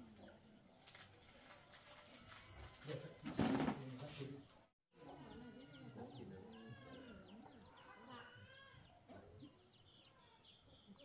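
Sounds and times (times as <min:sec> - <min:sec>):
high peeping chirps: 0:05.1 - 0:11.0.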